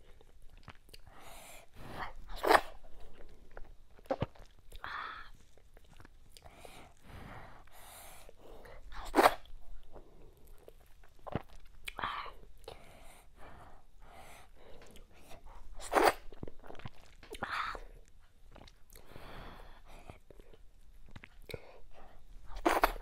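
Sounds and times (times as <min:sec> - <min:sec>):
wet chewing and lip smacking: 0:00.0 - 0:01.3, 0:02.2 - 0:07.0, 0:08.7 - 0:12.8, 0:14.6 - 0:19.1, 0:19.8 - 0:23.0.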